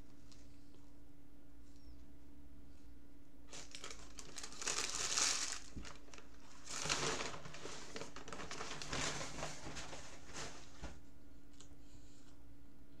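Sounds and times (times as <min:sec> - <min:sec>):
paper wrapper crinkling: 0:03.5 - 0:11.0.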